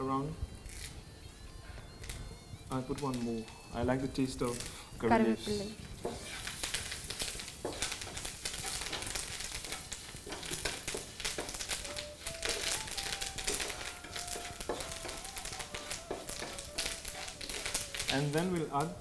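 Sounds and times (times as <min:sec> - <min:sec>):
spices sizzling in hot oil: 0:00.0 - 0:19.0
wooden spatula scraping wok: 0:06.0 - 0:18.4.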